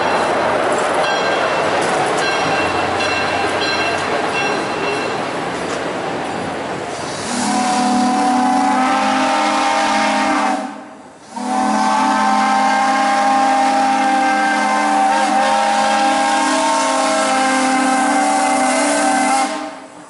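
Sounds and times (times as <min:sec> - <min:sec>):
steam locomotive whistle: 0:07.0 - 0:19.9.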